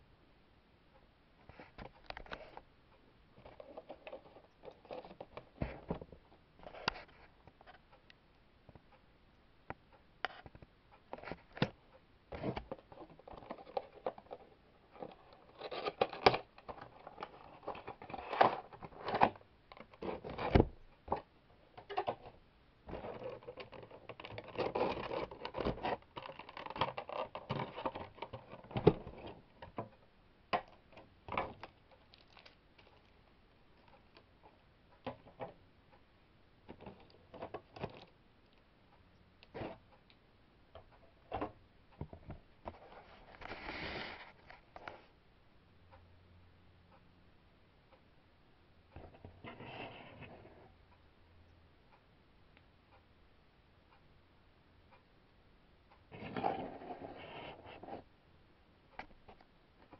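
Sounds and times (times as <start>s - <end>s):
cardboard box and plastic case handled: 3.4s - 7.2s, 12.4s - 29.9s.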